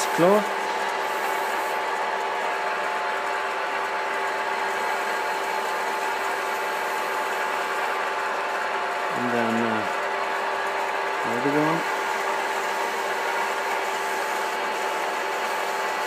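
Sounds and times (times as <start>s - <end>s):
lathe humming: 0.0s - 16.0s.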